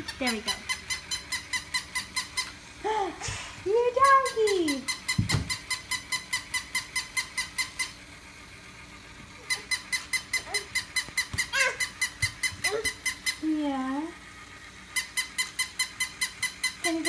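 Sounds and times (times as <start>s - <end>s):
toy puppy squeaking: 0.0s - 2.6s, 4.0s - 8.0s, 9.4s - 13.6s, 14.9s - 17.0s
toddler sounds: 9.4s - 13.2s.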